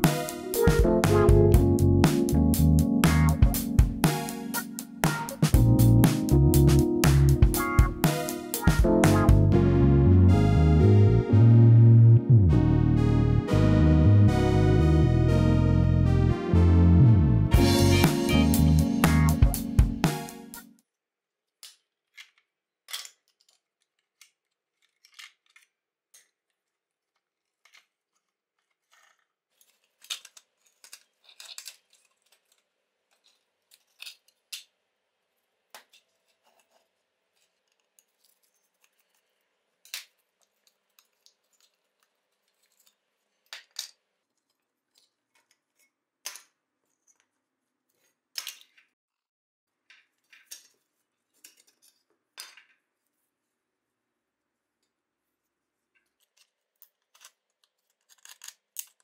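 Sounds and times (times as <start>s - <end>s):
small metal and plastic parts clinking: 21.6s - 34.7s, 35.8s - 47.3s, 56.0s - 59.0s.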